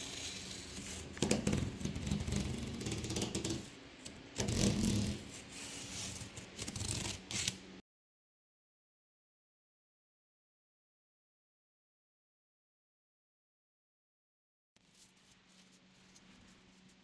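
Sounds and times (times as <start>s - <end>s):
knife slicing packing tape: 6.2s - 7.6s.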